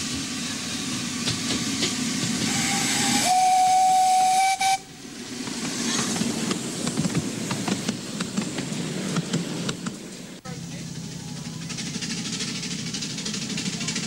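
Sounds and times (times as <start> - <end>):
steam hissing: 0.0 - 14.0
train rumbling past: 0.0 - 14.0
steam whistle blast: 2.5 - 4.9.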